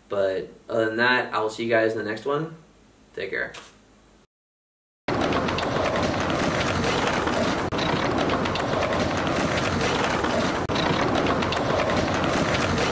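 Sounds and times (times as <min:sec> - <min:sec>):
skateboard clacks and pops: 0:05.1 - 0:12.9
skateboard wheels rolling on concrete: 0:05.1 - 0:12.9.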